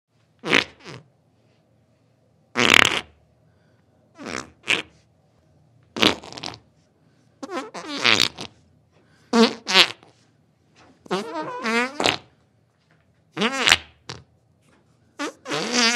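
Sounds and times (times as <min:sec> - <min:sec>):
farts: 0:00.4 - 0:01.1, 0:02.6 - 0:03.2, 0:04.2 - 0:05.0, 0:06.0 - 0:06.7, 0:07.4 - 0:08.6, 0:09.3 - 0:10.2, 0:11.0 - 0:12.3, 0:13.4 - 0:14.3, 0:15.2 - 0:15.9.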